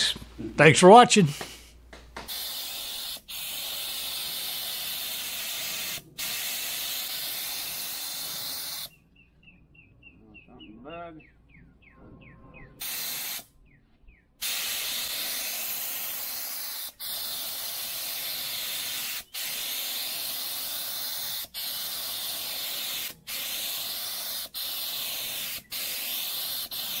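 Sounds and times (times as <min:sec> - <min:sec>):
paint spray gun hissing: 0:02.2 - 0:08.9, 0:12.8 - 0:13.5, 0:14.4 - 0:27.0.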